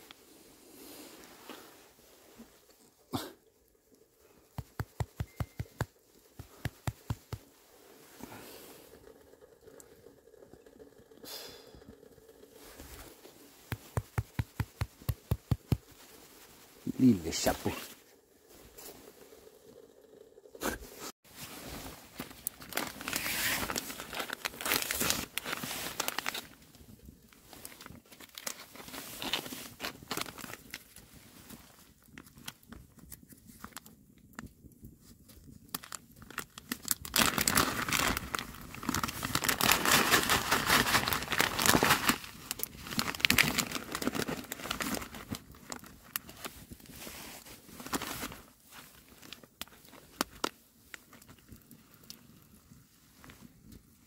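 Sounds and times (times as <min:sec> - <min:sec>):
paper pouch crinkling: 0:22.1 - 0:26.6, 0:27.6 - 0:30.8, 0:35.7 - 0:46.5
paper pouch tearing open: 0:22.6 - 0:26.5, 0:36.7 - 0:45.3.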